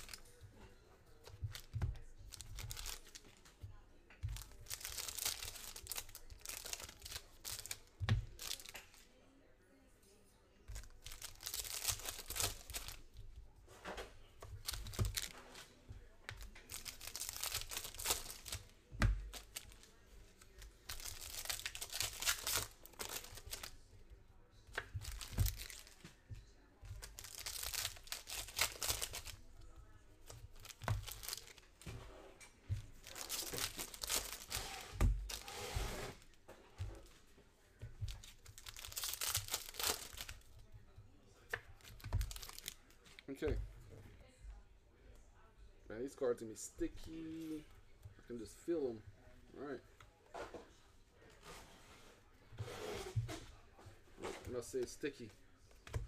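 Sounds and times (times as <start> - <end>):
foil wrappers tearing and crinkling: 4.4 - 8.9, 10.8 - 13.0, 16.6 - 23.8, 24.8 - 26.0, 27.0 - 29.5, 30.4 - 31.6, 33.0 - 36.3, 38.1 - 40.5, 41.8 - 42.8.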